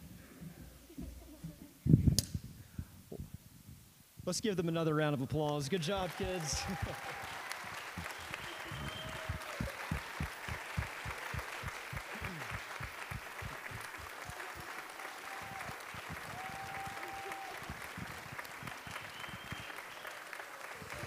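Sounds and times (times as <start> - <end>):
crowd applauding: 5.7 - 21.0.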